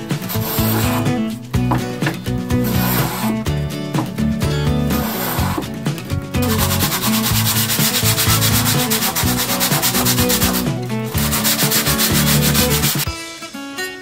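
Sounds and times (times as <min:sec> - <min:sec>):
guitar music: 0:00.0 - 0:14.0
wood being sanded: 0:00.1 - 0:01.2, 0:02.5 - 0:03.4, 0:04.9 - 0:05.8, 0:06.4 - 0:13.1.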